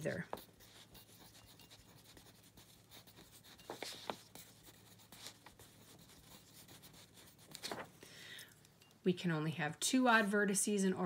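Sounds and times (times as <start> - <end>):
pen scratching on paper: 0.0 - 7.8.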